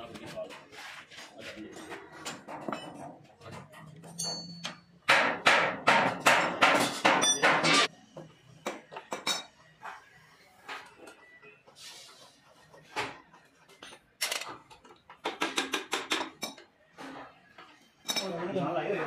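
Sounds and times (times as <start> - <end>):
metallic ring: 4.0 - 5.0
hammer striking metal: 4.2 - 7.9.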